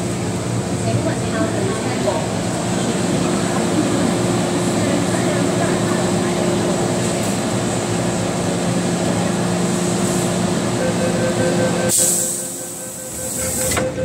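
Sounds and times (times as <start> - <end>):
train equipment hum: 0.0 - 14.0
door warning beeps: 10.7 - 14.0.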